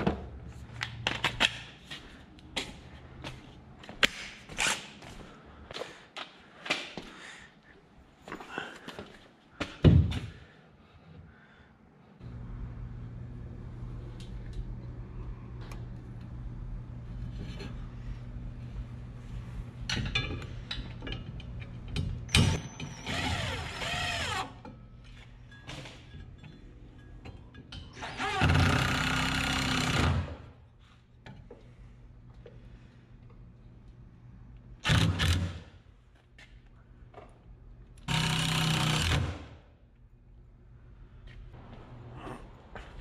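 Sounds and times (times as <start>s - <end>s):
cordless drill driving screws: 23.0s - 24.5s.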